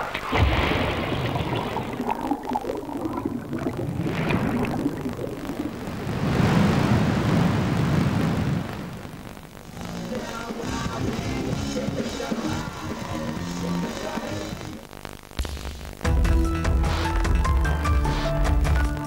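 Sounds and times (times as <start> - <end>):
underwater rumble and bubbling: 0.0 - 8.7.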